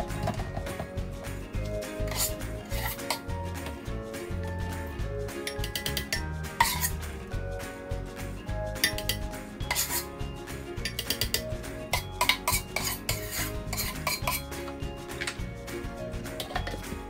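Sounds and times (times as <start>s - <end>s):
soft background music: 0.0s - 17.0s
metal spoon scraping steel pot: 1.7s - 3.3s, 5.5s - 7.0s, 8.8s - 10.2s, 10.9s - 14.5s.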